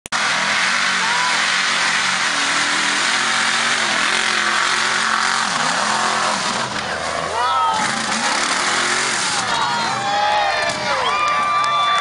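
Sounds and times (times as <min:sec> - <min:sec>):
truck engine at high revs: 0:00.0 - 0:11.1
mud tires spinning hiss: 0:00.2 - 0:09.4.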